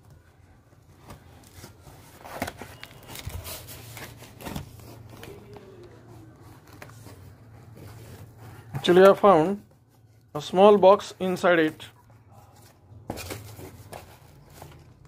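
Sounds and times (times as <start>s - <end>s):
cardboard box rustling and scraping: 6.5s - 9.3s, 12.5s - 15.0s.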